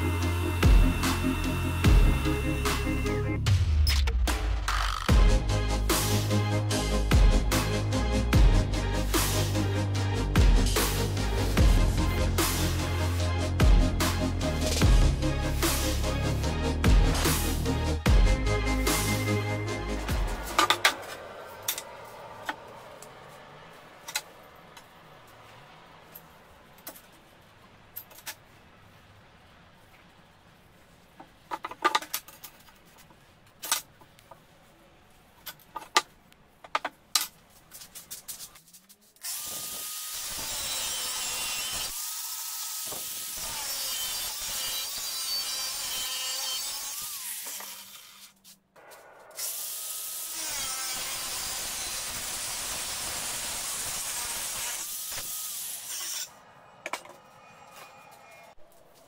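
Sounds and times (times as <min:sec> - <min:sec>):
angle grinder cutting steel: 0:00.0 - 0:03.3, 0:04.8 - 0:23.7, 0:39.2 - 0:58.5.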